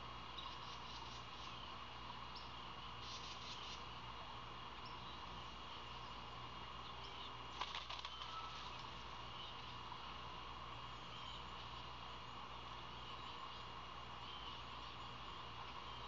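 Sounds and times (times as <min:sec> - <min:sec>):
steady hiss: 0:00.0 - 0:16.0
bird chirps: 0:00.3 - 0:01.6, 0:08.0 - 0:09.8, 0:10.9 - 0:12.4, 0:13.0 - 0:16.0
faint high steady tone: 0:08.0 - 0:10.0, 0:10.6 - 0:16.0.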